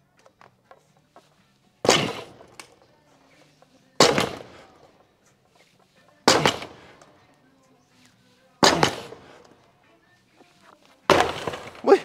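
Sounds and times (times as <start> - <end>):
barbell thudding on gym floor: 6.3 - 6.9.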